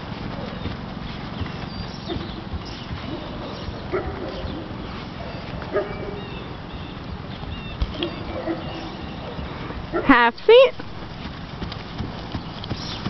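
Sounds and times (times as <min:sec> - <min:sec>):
small birds chirping: 0:00.0 - 0:13.0
sharp bird calls: 0:01.4 - 0:09.7, 0:12.3 - 0:13.0.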